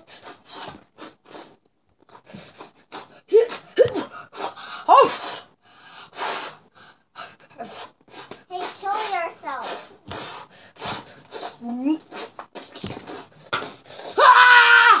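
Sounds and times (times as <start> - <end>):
boy making mouth hisses and puffs: 0.0 - 6.6, 7.3 - 14.2
boy crying out: 14.2 - 15.0.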